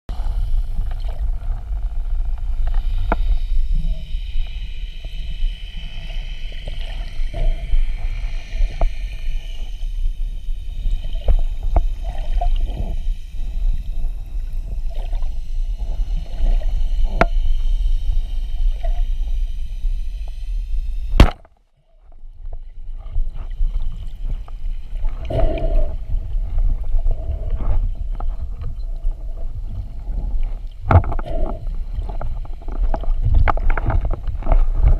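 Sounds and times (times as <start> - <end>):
underwater rumble: 0.1 - 34.9
speargun firing crack: 21.2 - 21.4
clicks and crackles: 30.4 - 34.9.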